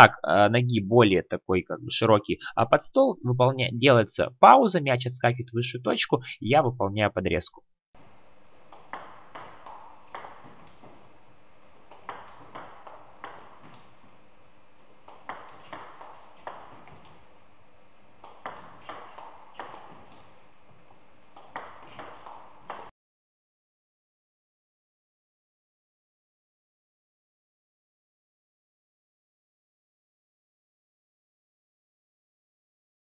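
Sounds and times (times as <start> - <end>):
table tennis ball clicking: 8.7 - 10.8, 11.9 - 13.9, 15.0 - 17.2, 18.2 - 20.2, 21.3 - 22.9.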